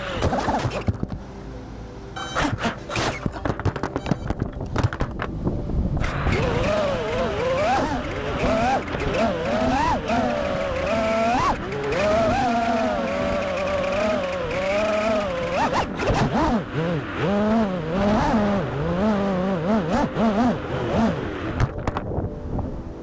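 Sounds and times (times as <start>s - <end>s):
quadcopter motors whining: 0.0s - 1.0s, 6.0s - 21.7s.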